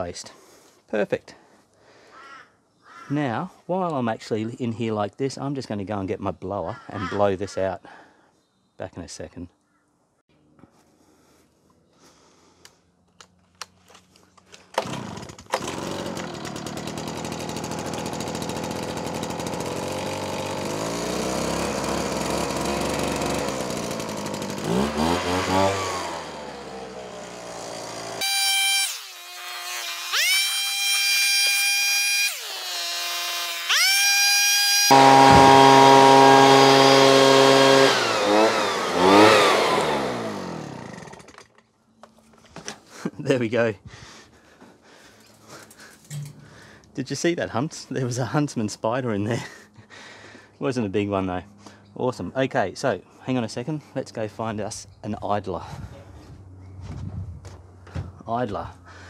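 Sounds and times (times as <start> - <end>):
leaf blower engine revving: 14.6 - 41.4.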